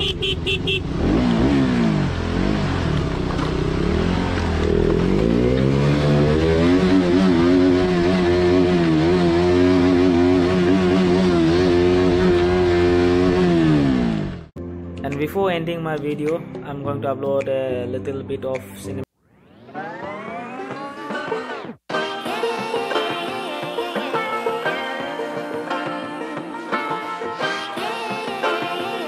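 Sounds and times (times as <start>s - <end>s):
motorcycle engine revving: 0.0s - 14.5s.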